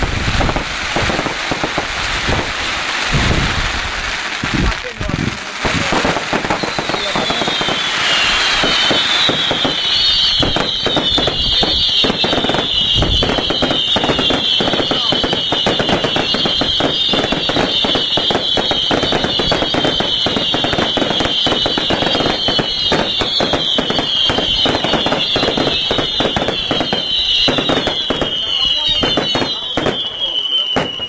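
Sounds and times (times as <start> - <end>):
fireworks crackling bangs: 0.0 - 31.0
falling whistling tone: 6.4 - 31.0.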